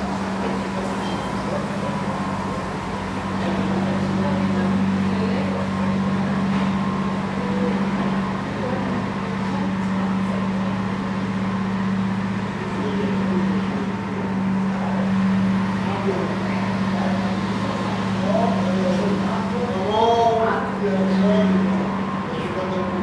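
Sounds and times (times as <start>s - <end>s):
funicular car machinery hum: 0.0s - 23.0s.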